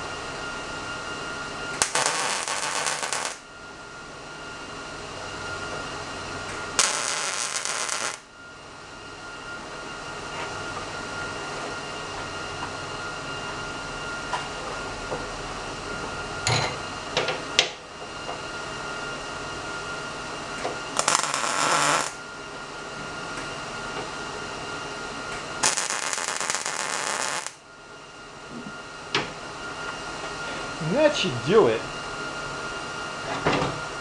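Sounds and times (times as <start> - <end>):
welder crackling buzz: 1.7 - 3.5, 6.8 - 8.3, 20.6 - 22.2, 25.3 - 27.6
steady hum: 25.3 - 34.0.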